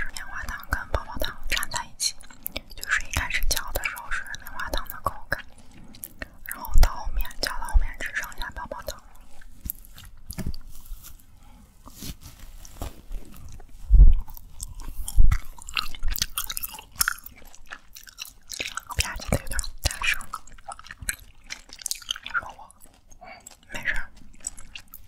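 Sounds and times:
close chewing of bubble gum: 0:00.0 - 0:25.0
low thumps: 0:13.8 - 0:14.3.

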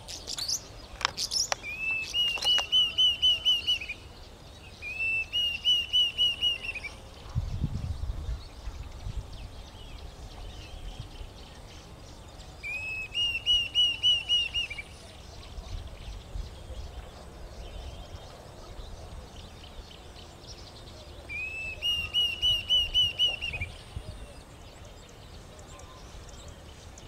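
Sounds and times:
cuckoo whistled calls: 0:01.2 - 0:04.1, 0:04.7 - 0:07.0, 0:12.6 - 0:15.6, 0:20.9 - 0:24.6.

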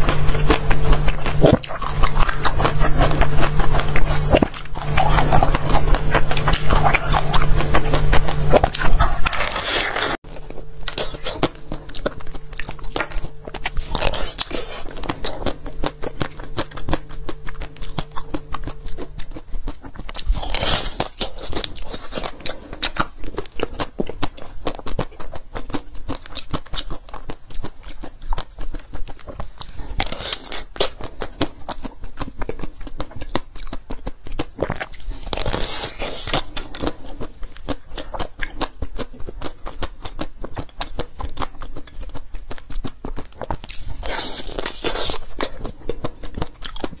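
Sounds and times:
crunching and chewing ice treat: 0:00.0 - 0:47.0.

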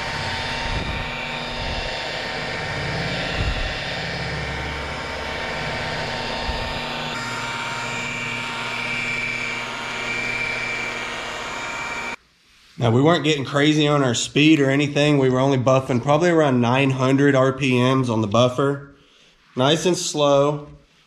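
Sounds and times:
rotary buffer motor whine: 0:00.0 - 0:12.2.

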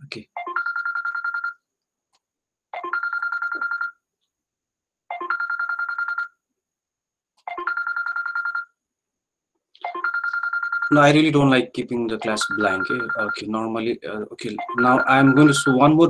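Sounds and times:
phone ringing: 0:00.4 - 0:01.6, 0:02.7 - 0:04.0, 0:05.1 - 0:06.4, 0:07.4 - 0:08.8, 0:09.8 - 0:11.4, 0:12.2 - 0:16.0.

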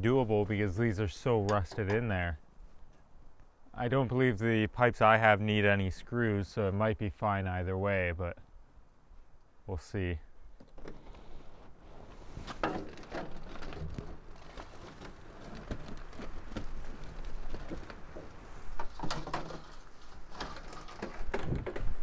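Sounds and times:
metal pipe scraping and creaking: 0:10.7 - 0:22.0.

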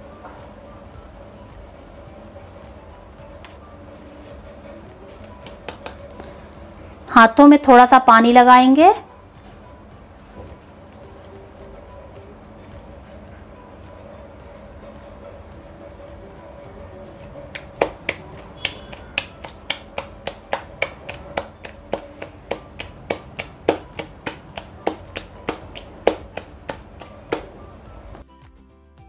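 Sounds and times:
hands slapping dough: 0:05.1 - 0:06.3, 0:17.5 - 0:28.2.

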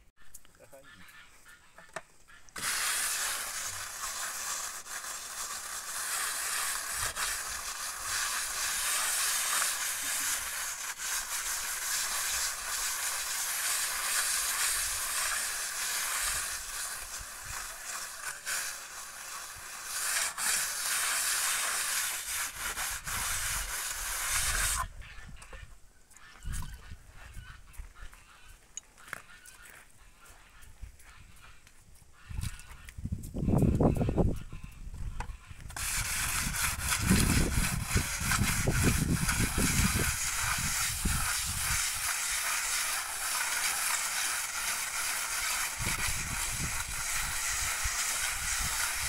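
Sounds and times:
hand float scraping cement render: 0:02.5 - 0:25.6, 0:35.6 - 0:49.0.

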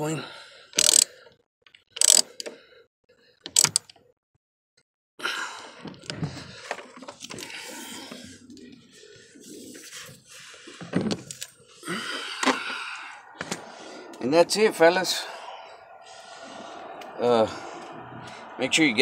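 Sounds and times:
socket wrench clicking: 0:00.8 - 0:01.1, 0:02.0 - 0:02.6.

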